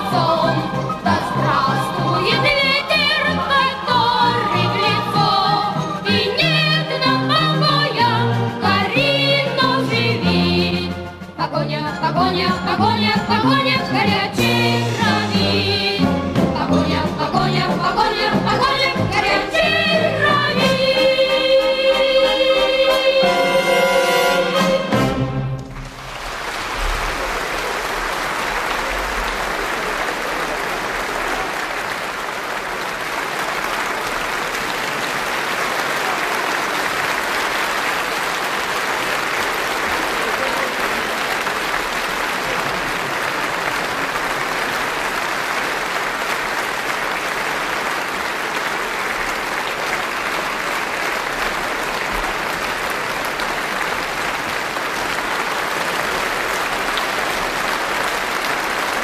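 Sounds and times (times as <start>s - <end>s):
audience applause: 24.0s - 59.0s.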